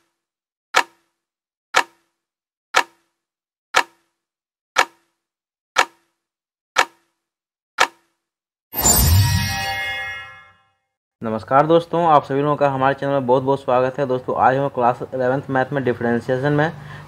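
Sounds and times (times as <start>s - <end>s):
clock-like ticks with low ring: 0.8s - 1.1s, 1.8s - 2.1s, 2.8s - 3.1s, 3.8s - 4.1s, 4.8s - 5.2s, 5.8s - 6.1s, 6.8s - 7.1s.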